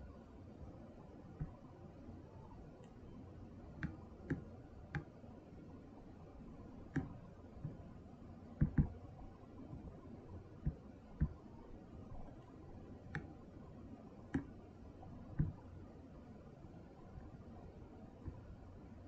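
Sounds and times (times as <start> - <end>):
faint room hiss: 0.0 - 19.0
computer mouse clicking: 3.7 - 5.2, 6.8 - 7.8, 8.6 - 9.0, 12.2 - 13.4, 14.3 - 14.7, 15.3 - 15.7.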